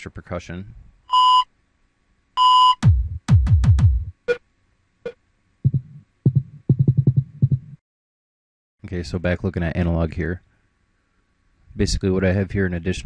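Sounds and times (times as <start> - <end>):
low electronic thumps: 2.8 - 4.2, 5.7 - 7.8.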